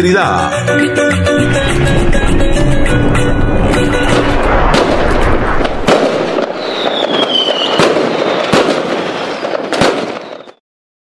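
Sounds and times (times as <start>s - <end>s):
fireworks bangs: 1.4s - 10.6s
fireworks crackling: 1.5s - 10.6s
falling firework whistle: 3.1s - 10.6s.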